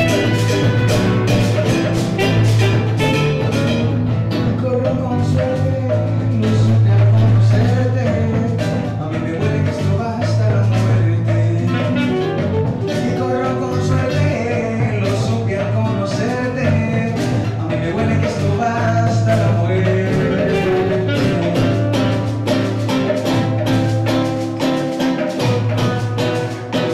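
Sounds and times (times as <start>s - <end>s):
classical guitar strumming: 0.0s - 26.9s
low bass line: 0.0s - 26.9s
man singing into microphone: 4.4s - 22.3s.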